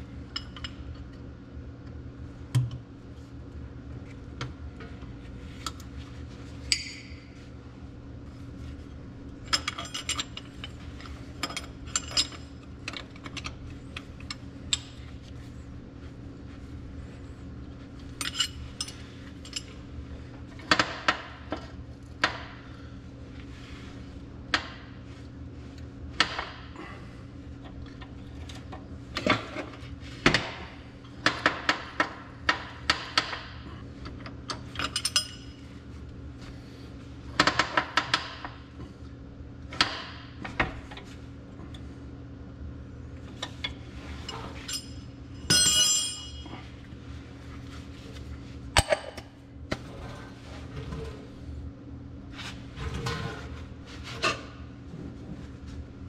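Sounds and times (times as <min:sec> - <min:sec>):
steady low hum: 0:00.0 - 0:56.0
metal tools clinking: 0:44.3 - 0:46.5.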